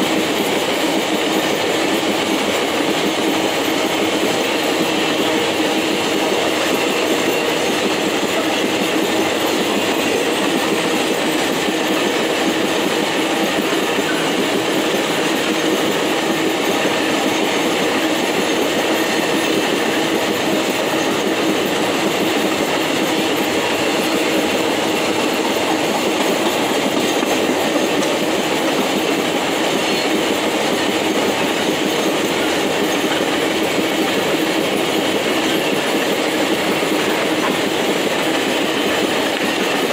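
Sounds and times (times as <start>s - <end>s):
train wagons rumbling on rails: 0.0s - 39.9s.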